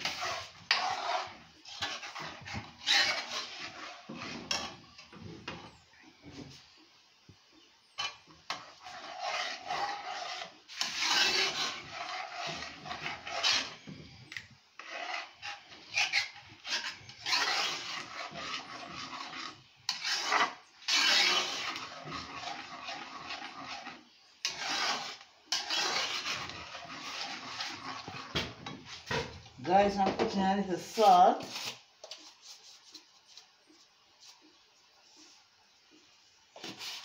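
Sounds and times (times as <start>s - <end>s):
spoon scraping metal pot: 0.0s - 5.8s, 7.9s - 30.0s.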